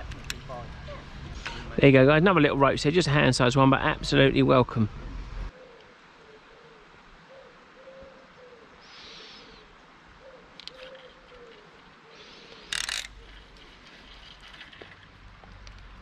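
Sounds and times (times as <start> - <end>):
pigeon cooing: 5.5 - 13.5.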